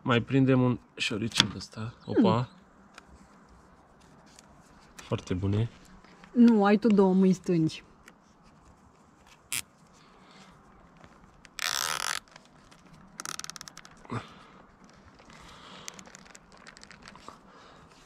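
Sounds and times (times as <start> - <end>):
zip tie zipping: 9.5 - 9.7, 11.5 - 12.3, 13.2 - 14.0.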